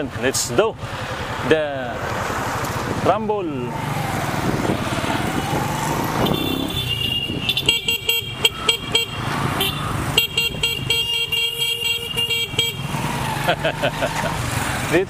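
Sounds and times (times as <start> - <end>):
engines running: 0.9 - 11.0, 12.1 - 15.0
vehicle horns honking: 6.0 - 13.1.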